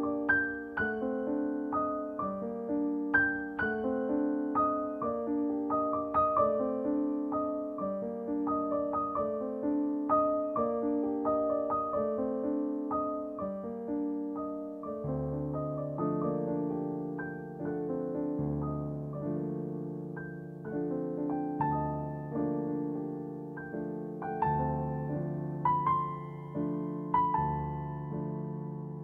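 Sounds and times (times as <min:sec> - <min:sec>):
piano melody over chords: 0:00.0 - 0:29.0.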